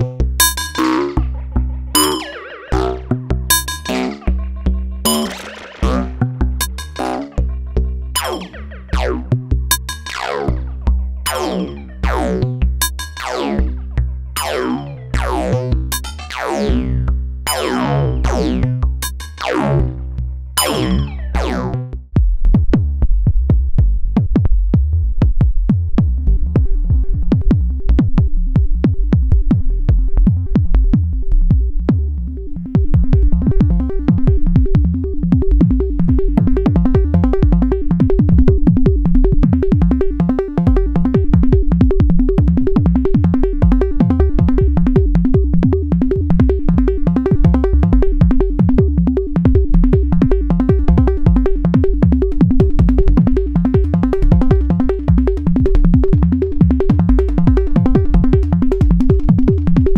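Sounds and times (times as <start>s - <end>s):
electronic kick drums: 0.0s - 4.2s, 5.0s - 7.2s, 22.1s - 59.9s
resonant synth sweeps falling: 0.8s - 12.4s, 20.6s - 21.8s
sustained synth tone: 0.8s - 12.6s, 20.6s - 21.9s, 32.5s - 59.9s.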